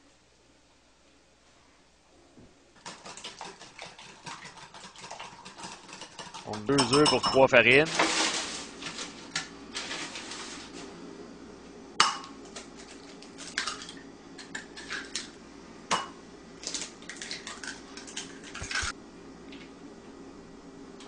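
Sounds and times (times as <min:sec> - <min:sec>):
eggshell clinking on glass bowl: 0:06.3 - 0:07.6.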